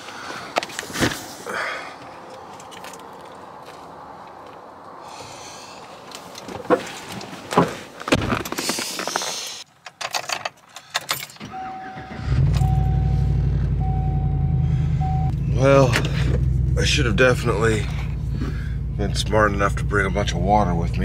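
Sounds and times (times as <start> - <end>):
keys rattling: 9.8 - 11.5
dashboard warning chime beeping: 11.4 - 15.3
truck engine starting and idling: 11.4 - 21.0.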